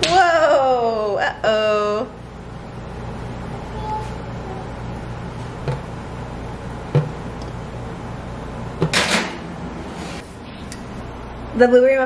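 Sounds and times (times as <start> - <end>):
steady low hum: 0.0 - 12.0
spoon knocking muffin cups: 5.6 - 5.9, 6.9 - 7.2.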